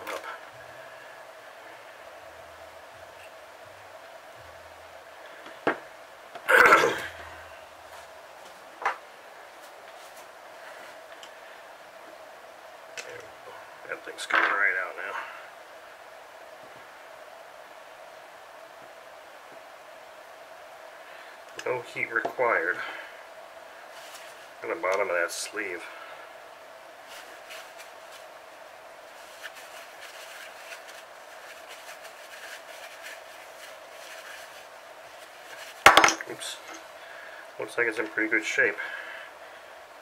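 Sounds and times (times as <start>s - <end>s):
background hiss: 0.0s - 40.0s
faint hum: 0.0s - 40.0s
paper towel rustling: 6.7s - 8.8s, 9.4s - 11.1s, 23.8s - 26.0s, 26.9s - 37.0s.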